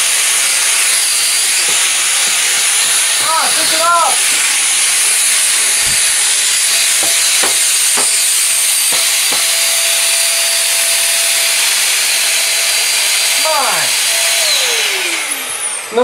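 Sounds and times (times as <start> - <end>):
vacuum cleaner hissing: 0.0 - 16.0
thin whine: 12.4 - 16.0.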